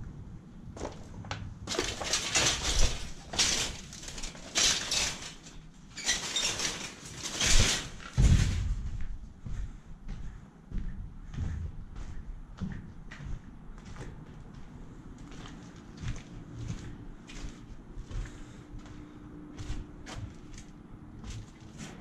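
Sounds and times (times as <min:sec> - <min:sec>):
footsteps crunching on rubble: 0:00.8 - 0:22.0
low thump: 0:08.2 - 0:09.0.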